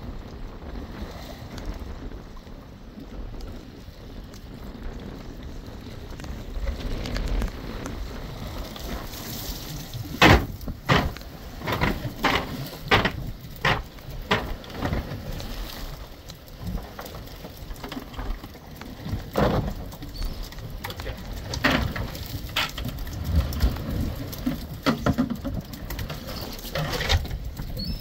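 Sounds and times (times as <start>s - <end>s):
water splashing and pattering: 0.0s - 28.0s.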